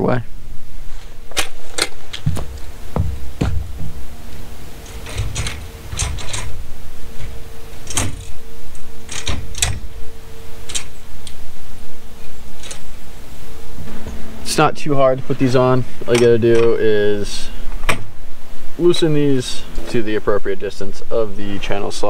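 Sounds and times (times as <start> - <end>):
steady low rumble: 0.2 - 18.9
solar panel clicking and knocking: 1.4 - 11.4.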